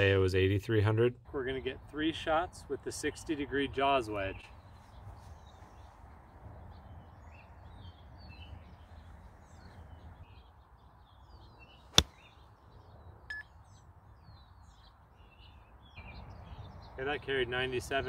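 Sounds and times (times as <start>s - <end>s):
faint bird chirps: 4.2s - 17.1s
golf club striking ball: 11.9s - 12.3s.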